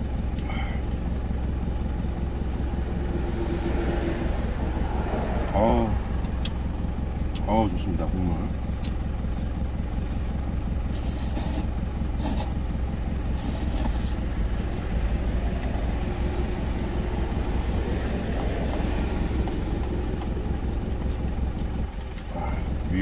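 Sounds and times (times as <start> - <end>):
truck engine idling: 0.0 - 23.0
slurping noodles: 11.0 - 12.5.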